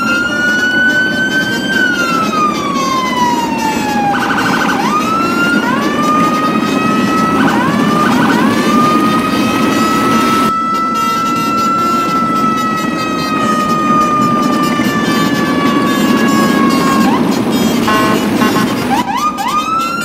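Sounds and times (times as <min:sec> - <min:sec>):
electronic siren wailing: 0:00.0 - 0:20.0.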